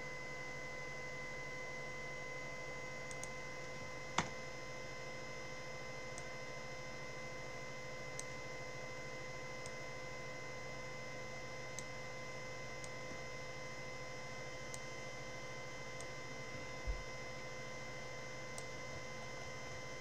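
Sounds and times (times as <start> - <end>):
electrical hum with high whine: 0.0 - 20.0
computer mouse clicks: 3.1 - 3.3.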